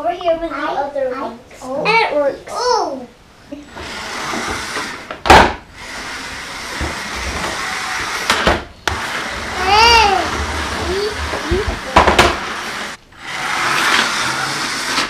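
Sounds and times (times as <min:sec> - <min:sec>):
slot car motors whirring: 0:09.0 - 0:15.0.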